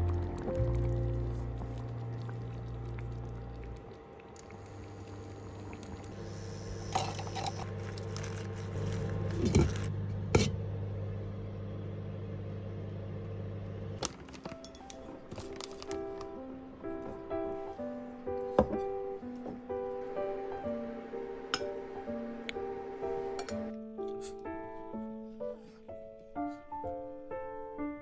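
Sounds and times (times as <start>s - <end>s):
low hum: 0.0s - 14.0s.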